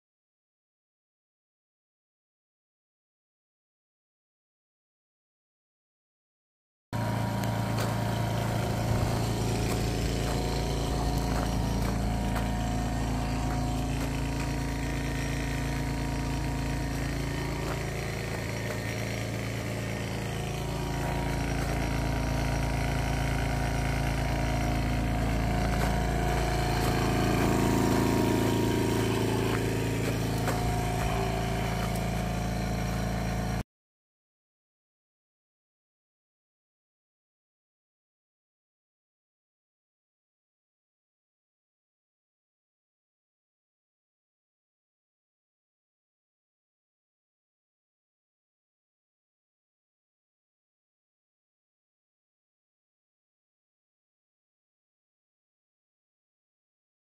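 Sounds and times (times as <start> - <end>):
machine motor humming: 7.0 - 33.6.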